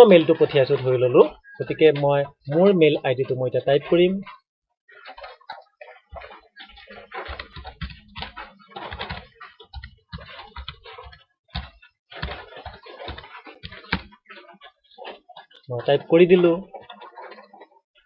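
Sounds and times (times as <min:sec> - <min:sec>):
keyboard typing: 0:05.5 - 0:14.5.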